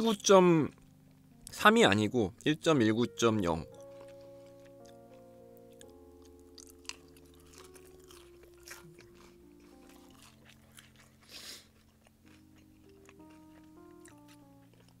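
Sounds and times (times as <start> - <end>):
soft background music: 0.0 - 15.0
crunching bites and chewing: 3.3 - 15.0.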